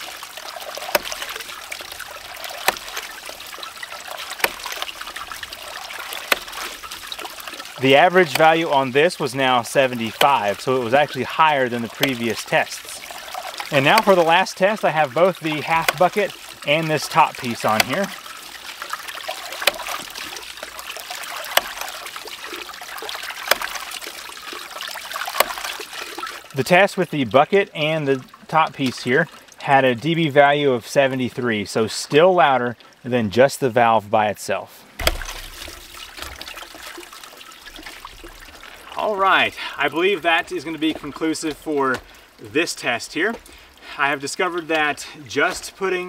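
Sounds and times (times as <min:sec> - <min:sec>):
water splashing and trickling: 0:00.0 - 0:46.0.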